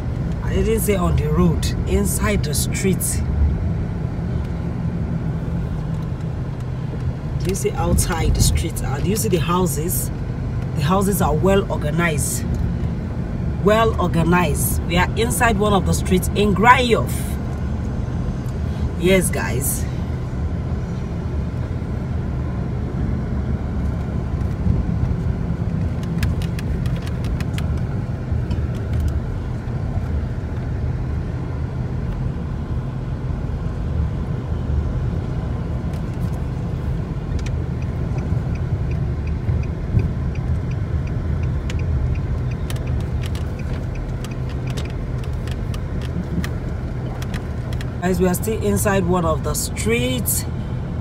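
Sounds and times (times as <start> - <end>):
car engine and tyre rumble: 0.0 - 51.0.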